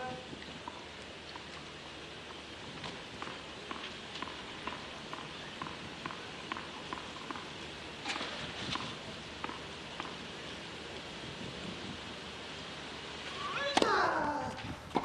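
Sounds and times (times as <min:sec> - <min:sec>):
tennis ball bouncing on clay: 0:02.3 - 0:07.6, 0:08.2 - 0:10.2, 0:13.6 - 0:14.0.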